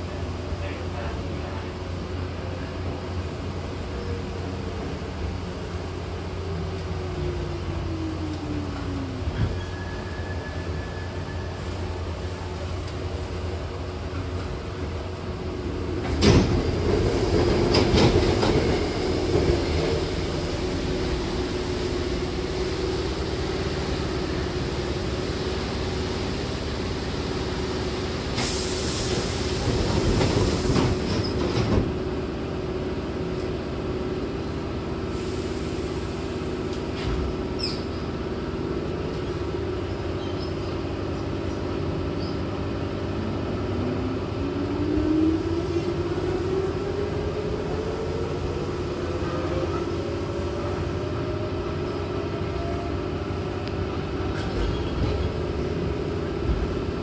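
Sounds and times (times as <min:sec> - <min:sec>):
train car hum: 0:00.0 - 0:57.0
train doors opening: 0:06.6 - 0:32.0, 0:35.1 - 0:38.2, 0:45.5 - 0:57.0.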